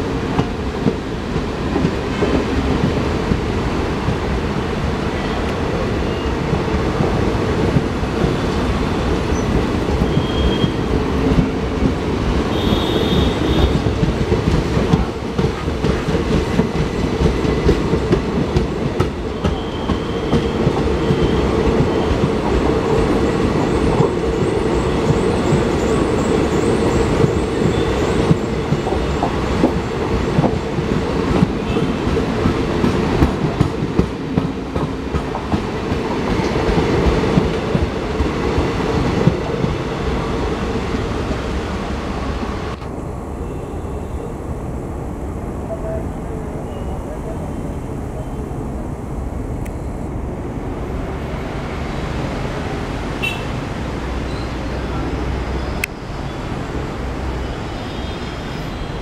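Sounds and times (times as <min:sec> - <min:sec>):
train wheels rumbling on rails: 0:00.0 - 0:43.1
clickety-clack over rail joints: 0:00.1 - 0:04.4, 0:06.4 - 0:41.1
high wheel squeals: 0:09.3 - 0:10.9, 0:19.4 - 0:22.2.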